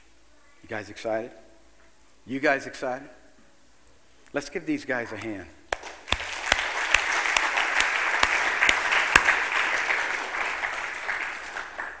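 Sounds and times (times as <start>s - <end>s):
single sharp claps: 5.2s - 12.0s
crowd applauding: 5.8s - 12.0s.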